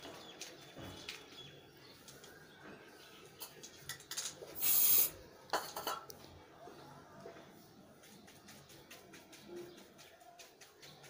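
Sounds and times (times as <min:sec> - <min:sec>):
spray can hissing: 0:04.6 - 0:05.2.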